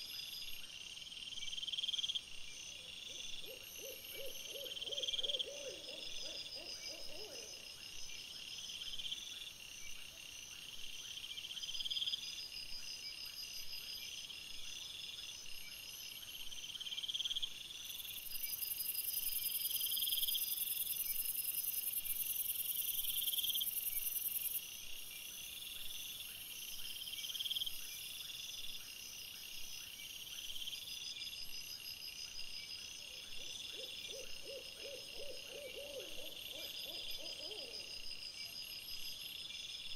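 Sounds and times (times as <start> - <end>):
crickets calling: 3.4 - 7.8, 33.0 - 39.7.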